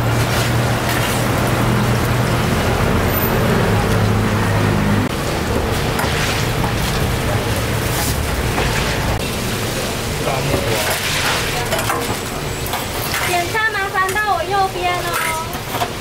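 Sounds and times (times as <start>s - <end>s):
oil sizzling and bubbling: 0.0s - 16.0s
strainer stirring in oil: 10.6s - 16.0s.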